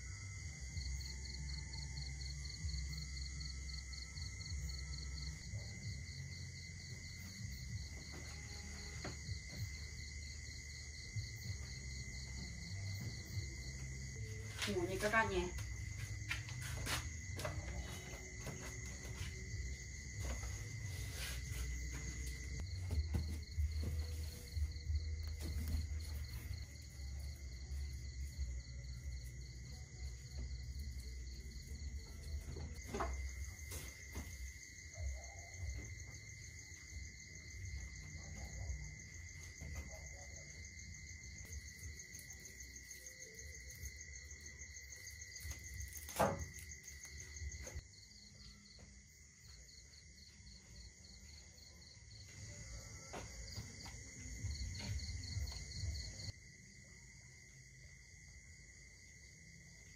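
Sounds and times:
insects chirring: 0:00.0 - 0:59.9.

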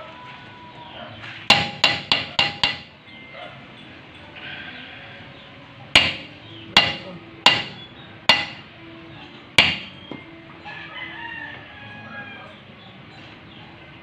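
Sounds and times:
hammer striking steel drum: 0:01.5 - 0:03.0, 0:06.0 - 0:08.7, 0:09.6 - 0:10.2.

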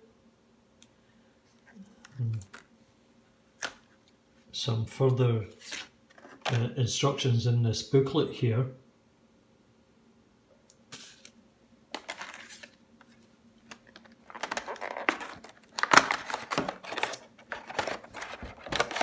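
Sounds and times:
paper booklets rustling: 0:12.0 - 0:19.0
plastic packaging tray crackling: 0:13.7 - 0:19.0.

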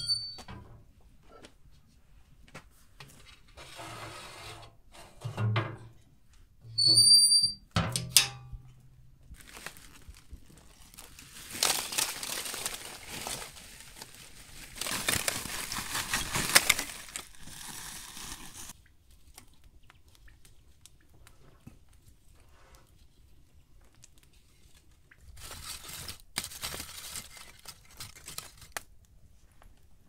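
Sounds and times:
oven door scraping and clanking: 0:03.6 - 0:05.9
charcoal crunching on bricks: 0:09.3 - 0:18.7.

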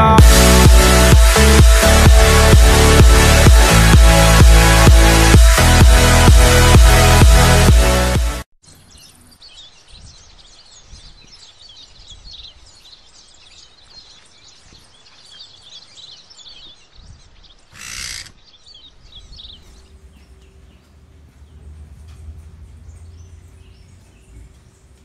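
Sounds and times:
birds chirping and twittering: 0:08.6 - 0:25.0.

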